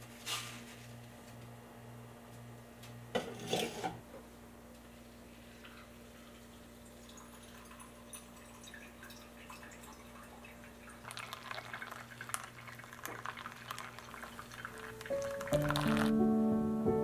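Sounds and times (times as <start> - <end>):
soft crackling and dripping: 5.5 - 16.1
hot water pouring onto coffee grounds: 5.7 - 16.1.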